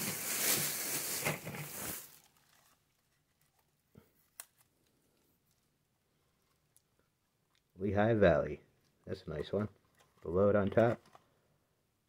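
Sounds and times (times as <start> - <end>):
plastic bag crinkling: 0.0 - 3.8.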